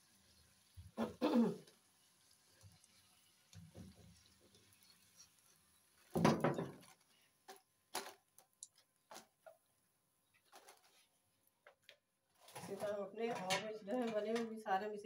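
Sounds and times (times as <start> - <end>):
loud kitchen clatter: 6.1 - 6.8.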